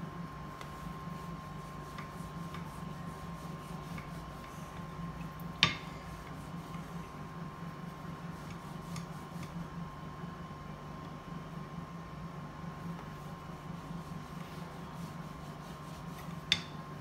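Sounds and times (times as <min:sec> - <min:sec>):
steady low hum: 0:00.0 - 0:17.0
rolling pin ticks and rubbing: 0:00.6 - 0:04.6.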